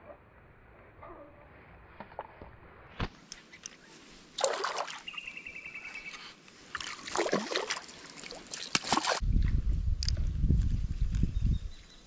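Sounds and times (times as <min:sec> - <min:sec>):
fish splashing at surface: 0:04.4 - 0:05.1, 0:06.8 - 0:09.2.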